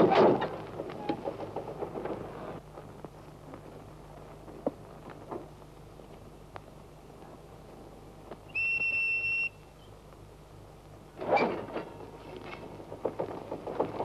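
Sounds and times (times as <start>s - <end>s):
freight wagons clanking: 0.0s - 3.0s, 11.1s - 14.0s
high whistle blast: 8.5s - 9.6s.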